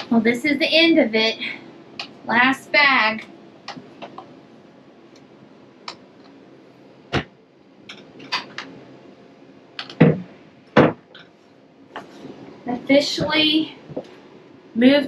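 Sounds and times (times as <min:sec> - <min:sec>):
heavier thumps: 0:09.9 - 0:11.1.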